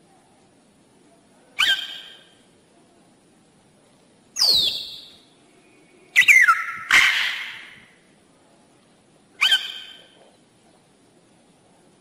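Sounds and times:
parrot squawk: 1.6 - 2.4, 6.2 - 7.9, 9.4 - 10.2
parrot whistling and calling: 1.6 - 2.4, 4.4 - 5.2, 6.2 - 7.9, 9.4 - 10.2.

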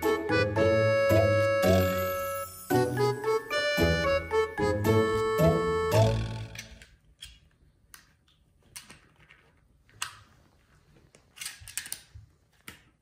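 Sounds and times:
background music: 0.0 - 6.7.

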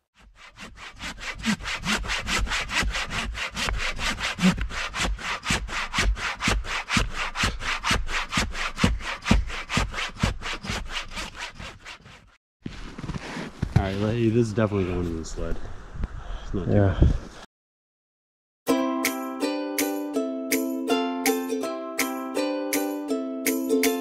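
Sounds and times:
hand saw cutting log: 0.0 - 12.4.

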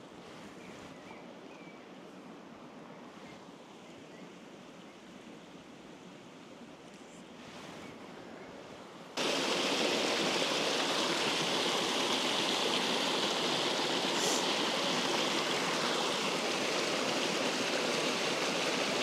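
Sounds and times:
stream rushing over rocks: 9.2 - 19.0.

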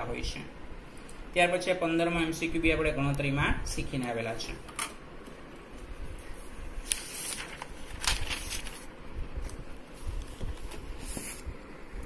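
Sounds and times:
paper rustling and tapping: 6.8 - 11.4.

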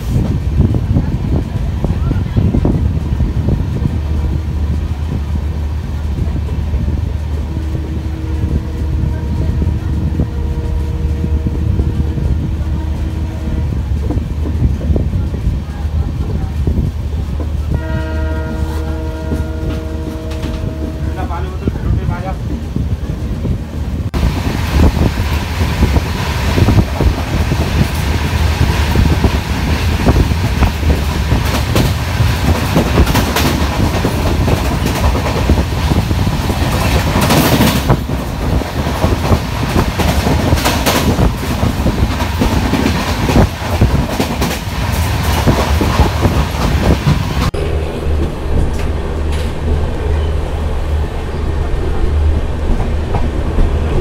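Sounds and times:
rushing air: 0.0 - 8.9, 22.4 - 54.0
low train rumble: 0.0 - 54.0
train wheels clickety-clack: 13.8 - 17.8, 21.6 - 47.5
steady hum: 47.5 - 54.0.

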